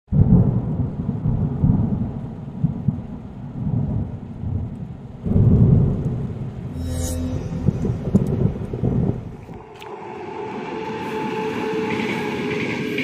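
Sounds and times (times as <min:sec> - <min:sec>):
rolling thunder: 0:00.1 - 0:06.7, 0:07.7 - 0:09.5.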